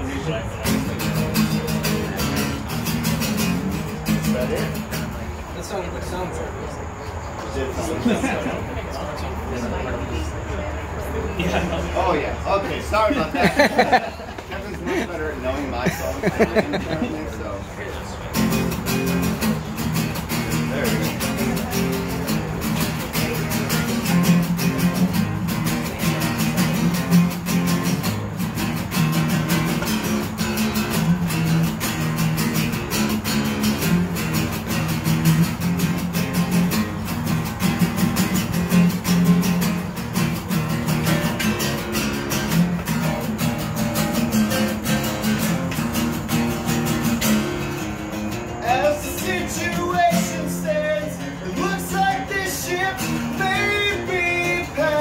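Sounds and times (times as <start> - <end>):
acoustic guitars strummed: 0.0 - 6.2, 18.2 - 55.0.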